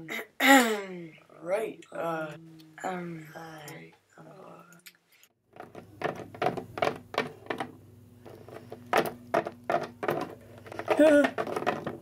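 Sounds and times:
plastic toys tapping on table: 5.6 - 7.8, 8.9 - 12.0.

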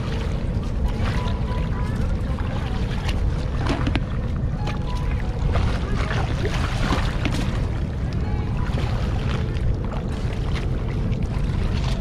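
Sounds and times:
water splashing around legs: 0.0 - 7.8
steady low rumble: 0.0 - 12.0.

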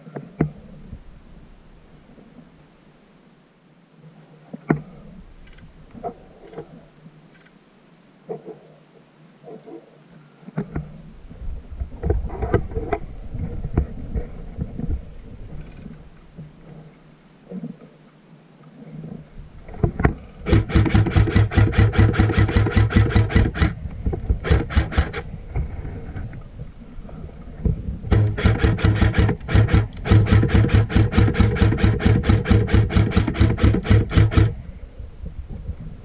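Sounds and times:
airsoft gun automatic fire: 20.4 - 25.4, 28.1 - 34.6.

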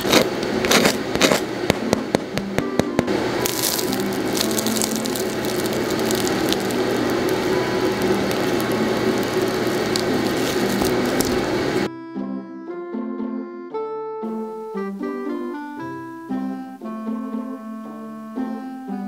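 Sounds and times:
bread roll being torn apart: 0.0 - 1.5, 3.4 - 11.5
knife sawing through bread crust: 0.0 - 1.5.

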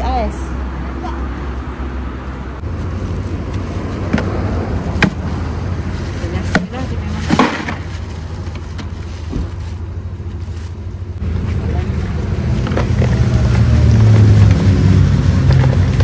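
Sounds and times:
vehicle engine and road rumble: 0.0 - 16.0.

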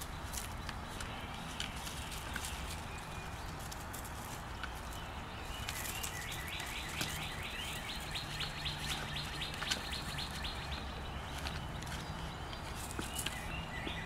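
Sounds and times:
puppy digging in soil: 0.0 - 14.0
bird rapid repeated call: 5.5 - 11.4.

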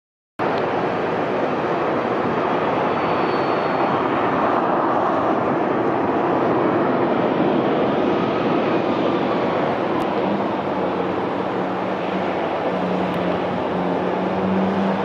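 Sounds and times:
distant jet engines roaring: 0.4 - 15.0.

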